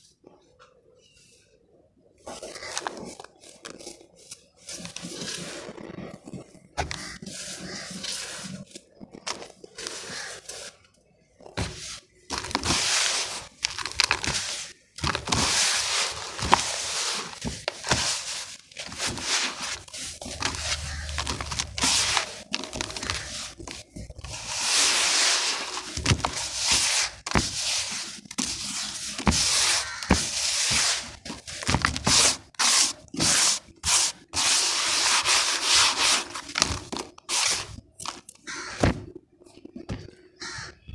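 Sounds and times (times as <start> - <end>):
hands scraping dry sand powder: 7.0 - 8.7, 12.6 - 13.6, 15.3 - 36.5, 37.3 - 37.8.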